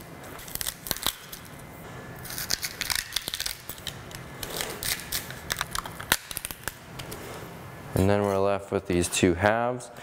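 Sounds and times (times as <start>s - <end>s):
fennel bulb crunching: 2.2s - 6.8s.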